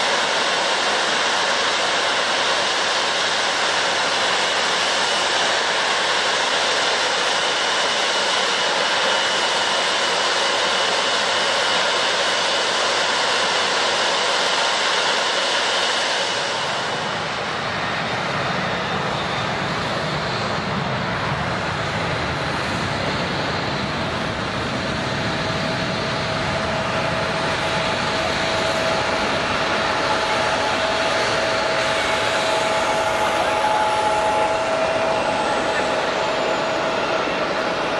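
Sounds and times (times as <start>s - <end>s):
jet engines hissing and whining: 0.0s - 37.9s
low aircraft rumble: 0.1s - 37.9s.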